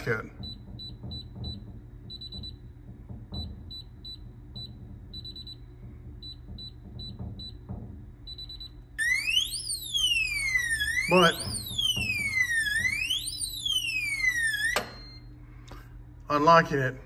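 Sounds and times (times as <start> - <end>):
longer beep: 8.4 - 15.3
alarm siren sweeping in pitch: 9.0 - 15.2.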